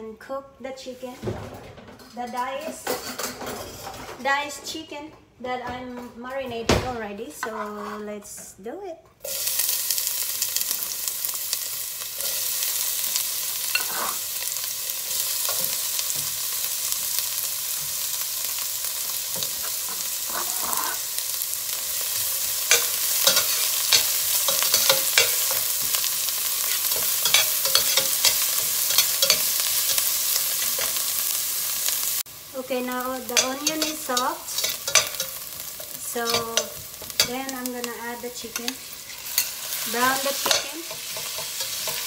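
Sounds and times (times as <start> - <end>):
onions sizzling in hot oil: 9.2 - 42.0
metal turner scraping a pot: 13.6 - 14.4, 19.3 - 21.2, 22.6 - 31.2, 33.3 - 37.5, 38.4 - 42.0.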